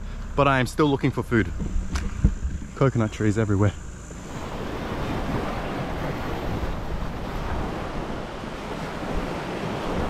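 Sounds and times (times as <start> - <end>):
wind on microphone: 1.5 - 2.9, 4.1 - 10.0
waves breaking on beach: 4.1 - 10.0.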